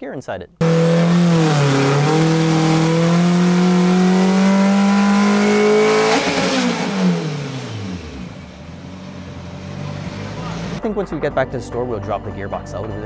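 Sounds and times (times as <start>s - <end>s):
engine revving under load: 0.6s - 10.8s.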